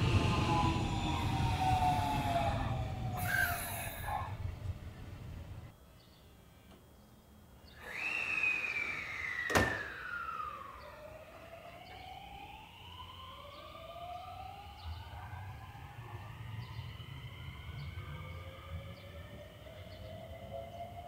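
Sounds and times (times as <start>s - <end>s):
electric train motors whining: 0.0s - 5.7s, 7.8s - 21.0s.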